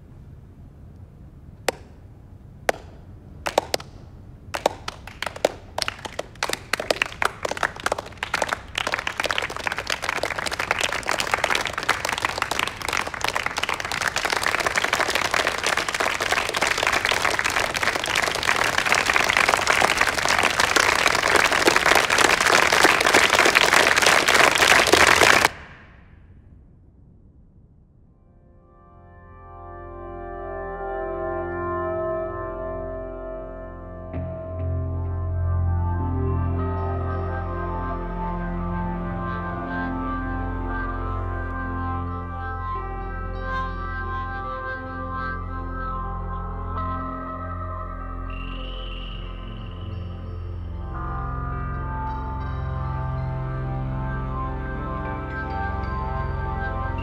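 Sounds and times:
crowd applauding: 2.7 - 4.0, 4.6 - 25.8.

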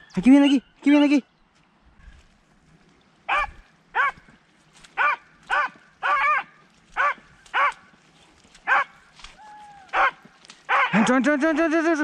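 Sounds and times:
hounds baying: 3.3 - 8.0, 8.6 - 9.0, 9.8 - 12.0.

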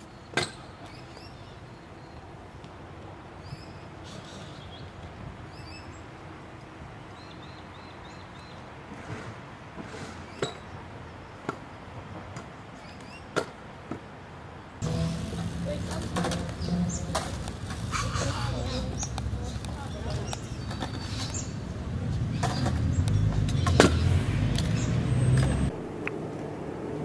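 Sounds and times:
low rumble: 14.8 - 17.9
scooter rolling on concrete: 14.8 - 27.0
scooter knocking on ground: 15.8 - 17.8.

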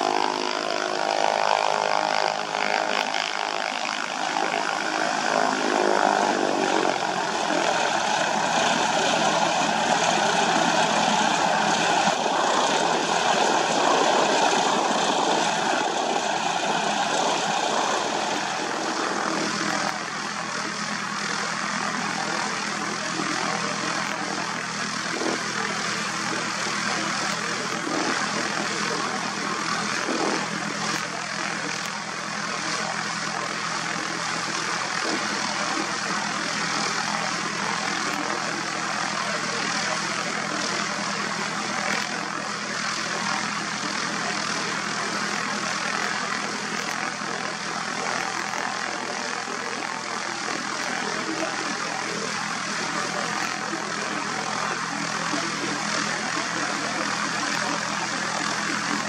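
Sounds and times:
propeller aircraft engine droning: 0.0 - 59.0.

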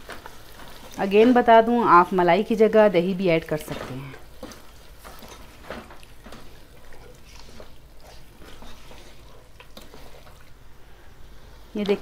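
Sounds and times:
spatula scraping a wok: 4.2 - 10.4.

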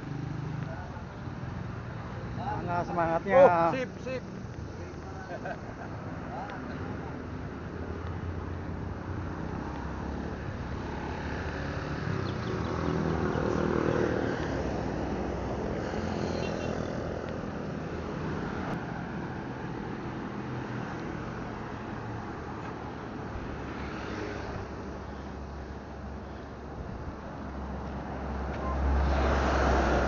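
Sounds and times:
road traffic engines: 0.0 - 30.0.

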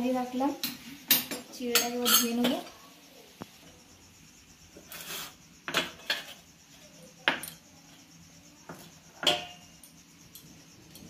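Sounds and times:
metal bowl clanking and scraping: 1.1 - 2.7, 4.8 - 6.5, 8.7 - 9.8.

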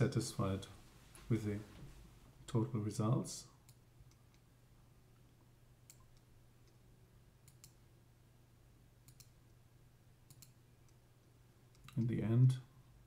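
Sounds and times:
low steady hum: 0.0 - 13.0
computer mouse clicks: 5.9 - 6.8, 7.4 - 7.8, 9.0 - 9.5, 10.3 - 11.0, 11.7 - 12.2.

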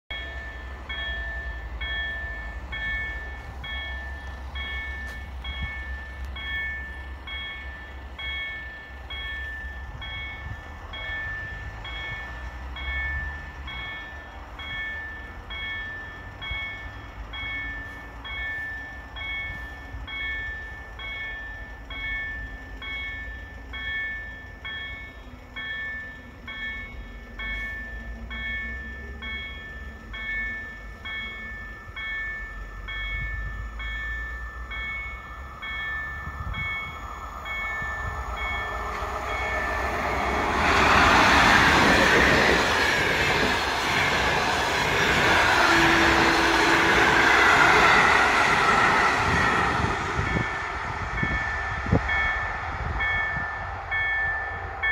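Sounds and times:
approaching train: 0.1 - 54.9
level crossing warning bell: 0.1 - 54.9
low rumble: 36.2 - 54.9.

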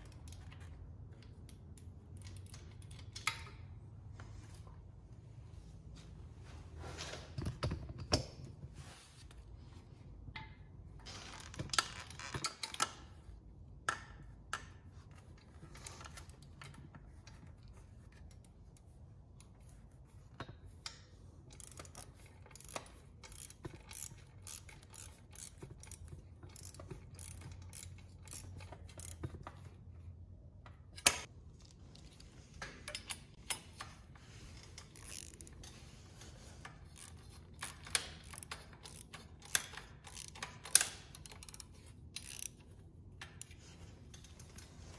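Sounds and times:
socket ratchet clicking: 20.8 - 29.6, 34.8 - 35.8, 36.6 - 44.4.

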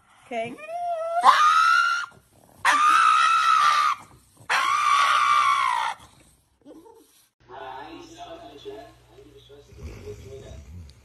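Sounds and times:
dog screaming: 1.0 - 6.1.

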